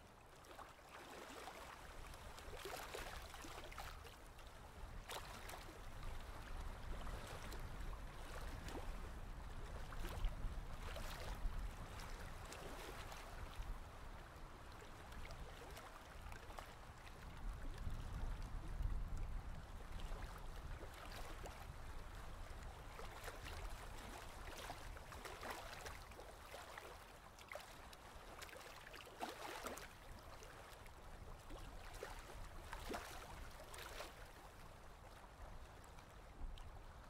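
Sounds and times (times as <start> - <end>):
paddle strokes in water: 0.0 - 37.0
water splashing and trickling: 0.2 - 7.5, 8.1 - 8.9, 9.5 - 36.8.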